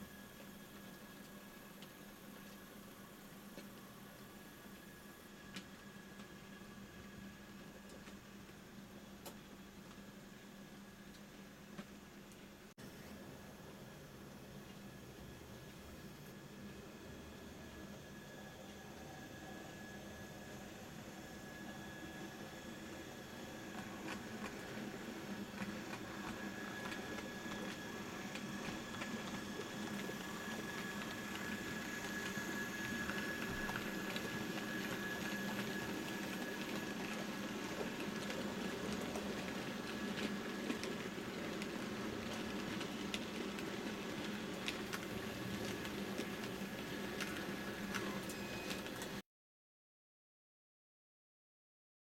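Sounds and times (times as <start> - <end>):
model train motor whine: 17.0 - 49.2.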